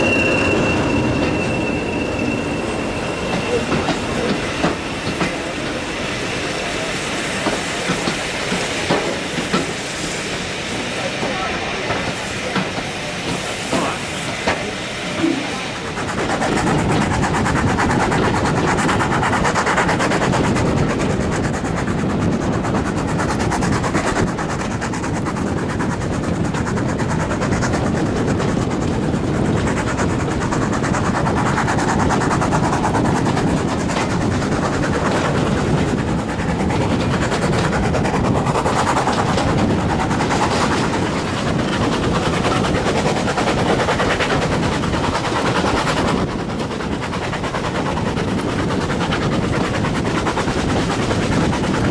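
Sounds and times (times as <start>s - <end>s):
rumble of train carriages: 0.0s - 51.9s.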